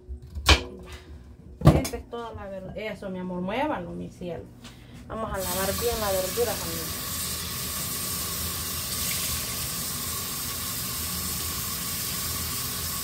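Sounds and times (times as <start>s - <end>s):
kitchen tap running: 5.4s - 13.0s.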